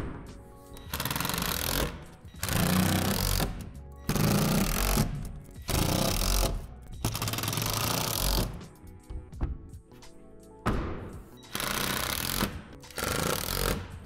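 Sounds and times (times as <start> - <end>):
background music: 0.0 - 14.0
cordless drill driving screws: 11.5 - 13.8.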